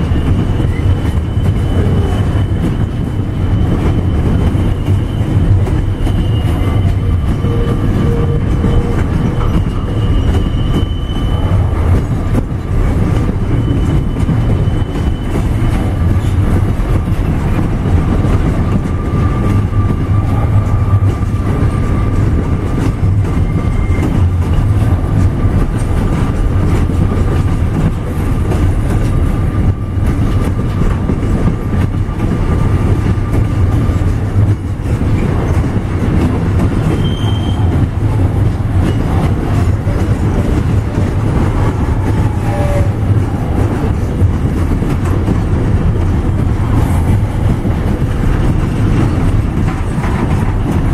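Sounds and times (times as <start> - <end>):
freight train wheels rumbling: 0.0 - 50.9
thin wheel squeal: 37.0 - 37.7.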